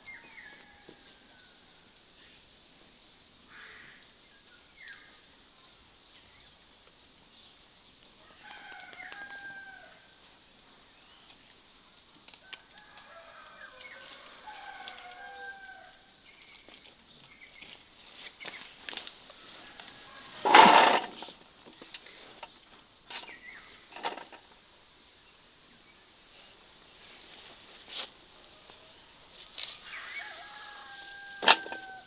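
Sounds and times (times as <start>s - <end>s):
rooster crowing: 8.2s - 10.1s, 12.5s - 16.1s, 19.4s - 21.1s, 29.8s - 32.0s
chicken calls: 29.8s - 32.0s.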